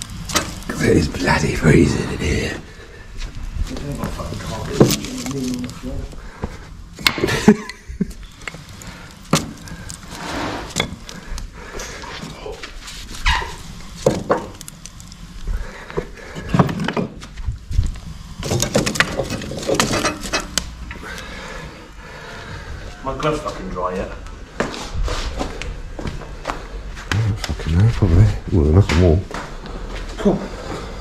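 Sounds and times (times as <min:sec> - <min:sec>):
wood knocking and clattering: 0:14.0 - 0:14.6, 0:16.4 - 0:17.4, 0:18.4 - 0:20.6.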